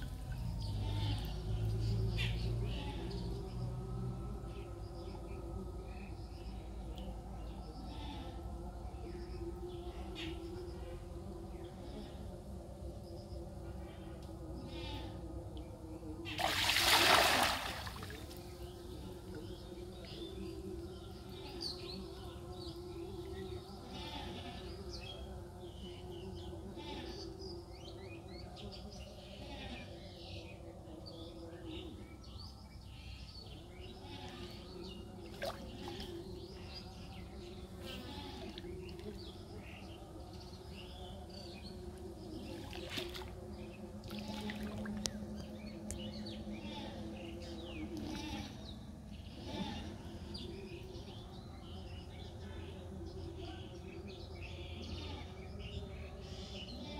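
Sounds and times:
outdoor background noise: 0.0 - 56.9
net splashing into water: 16.4 - 18.4
water sloshing: 16.4 - 18.5, 42.4 - 43.4, 44.0 - 45.2.

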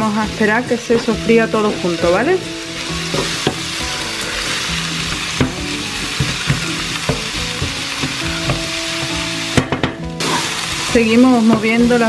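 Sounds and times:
vegetables sizzling in a frying pan: 0.0 - 12.0
wooden spatula scraping a pan: 10.2 - 11.8.

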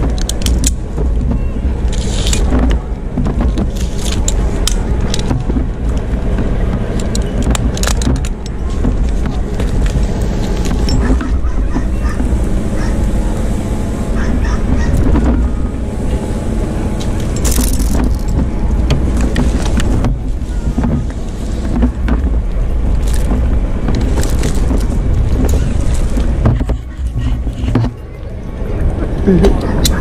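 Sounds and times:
rope hardware clicking: 0.0 - 12.9, 17.0 - 28.0
pine branches rubbing and knocking: 0.0 - 13.1, 17.0 - 28.0
steady low rumble: 0.0 - 30.0.

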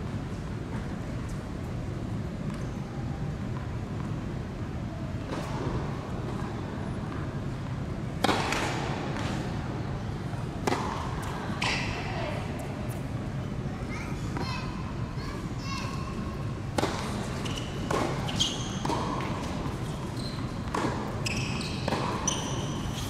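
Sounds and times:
tennis ball impacts: 8.2 - 9.4, 10.6 - 11.4, 16.7 - 18.2, 18.8 - 19.8, 20.6 - 21.2, 21.8 - 22.3.

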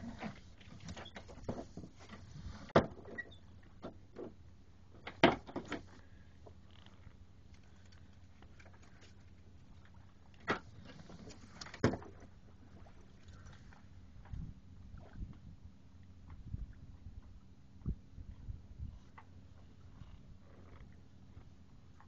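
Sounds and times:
knocks and taps on a sailboat: 0.3 - 5.9, 11.6 - 12.9.

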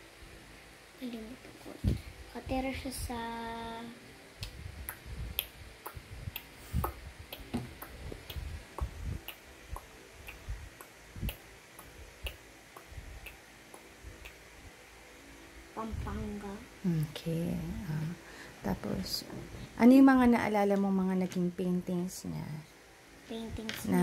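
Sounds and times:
soft low thumps: 4.5 - 14.4.

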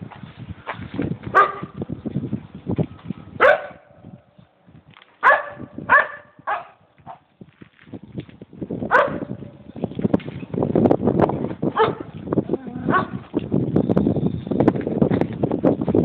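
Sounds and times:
dog barking: 1.4 - 1.8, 3.4 - 3.9, 5.2 - 7.2, 8.9 - 9.4, 11.8 - 12.1, 12.9 - 13.2.

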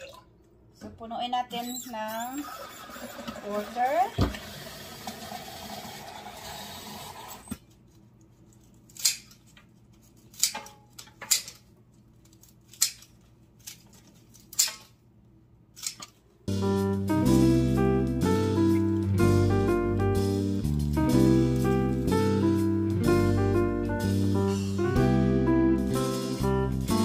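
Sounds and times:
tap water running into vase: 2.5 - 7.5
scissors snipping stems: 8.9 - 9.6, 10.3 - 10.6, 12.4 - 14.8.

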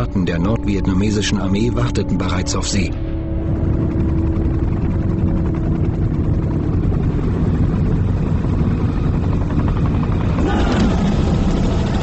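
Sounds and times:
low engine rumble: 2.9 - 12.0
helicopter rotor chop: 3.4 - 12.0.

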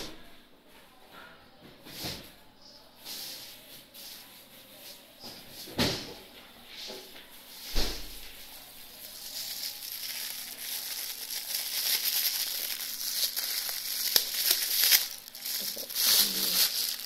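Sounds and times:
plastic bag rustling: 7.5 - 17.0.

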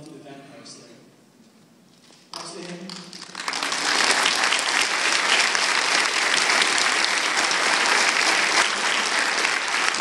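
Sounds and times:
crowd applauding: 2.4 - 10.0.

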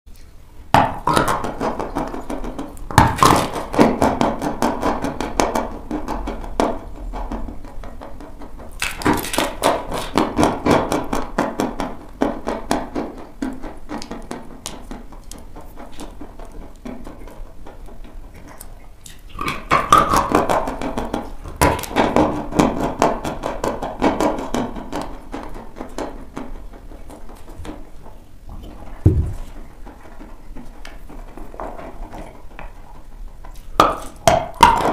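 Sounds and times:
thump: 29.1 - 29.4.

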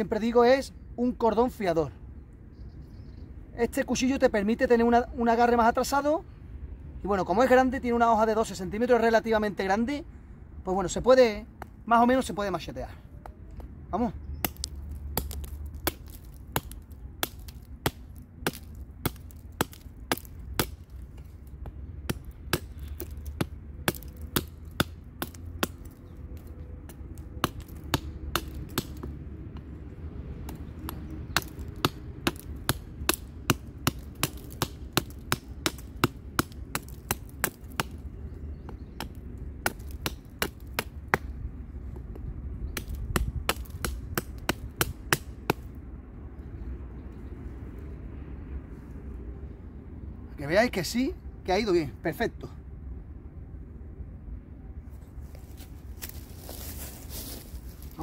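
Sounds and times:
knife chopping wooden branch: 14.4 - 29.7, 30.4 - 45.7.

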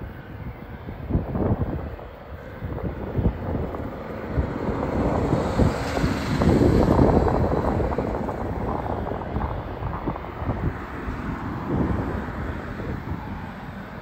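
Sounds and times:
distant jet engines humming: 0.0 - 14.0
wind buffeting microphone: 0.0 - 14.0.

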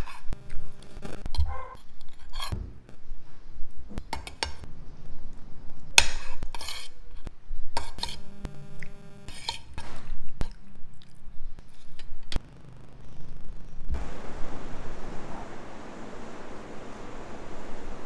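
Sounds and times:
cutlery scraping a plate: 1.6 - 2.6, 6.0 - 8.3, 9.3 - 10.0.

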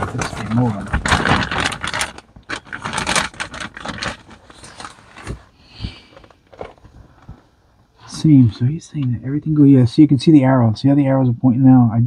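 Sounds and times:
plastic bag crinkling: 0.0 - 5.4.

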